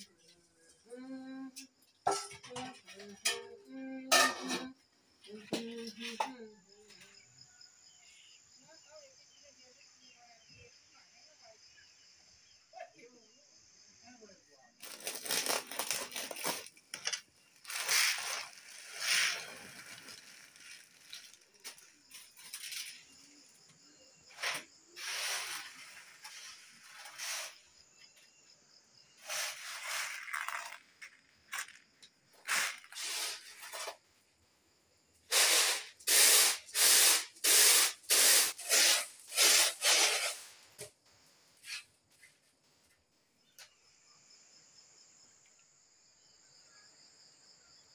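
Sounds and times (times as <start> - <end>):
lentils rustling on bamboo tray: 14.8 - 22.9, 29.2 - 30.8.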